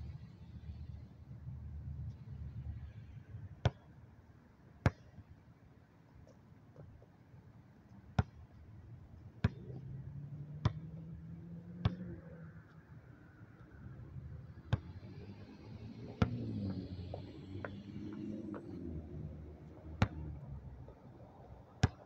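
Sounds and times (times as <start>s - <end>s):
basketball bouncing on court: 8.2s - 8.5s, 9.4s - 9.8s, 10.6s - 10.9s, 11.8s - 12.1s, 14.6s - 15.0s, 16.2s - 16.5s, 17.1s - 18.3s, 20.0s - 20.4s, 21.8s - 22.0s
car engine running: 14.8s - 20.8s.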